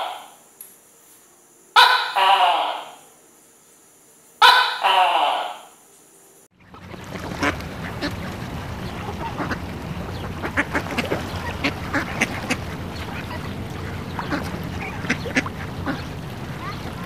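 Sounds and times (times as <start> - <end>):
low background noise: 0.0 - 17.0
waterfowl quacking: 1.8 - 3.0, 4.4 - 5.6, 6.6 - 17.0.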